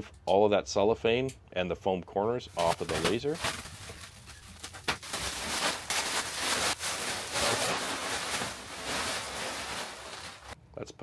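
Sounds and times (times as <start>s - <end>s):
plastic wrap crinkling: 2.6s - 10.6s.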